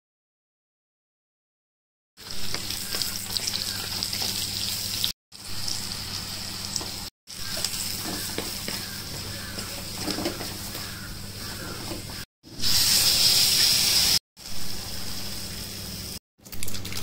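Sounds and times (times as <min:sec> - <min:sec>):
vegetables sizzling in oil: 0:02.2 - 0:16.2
wooden spatula stirring and scraping: 0:07.4 - 0:12.2.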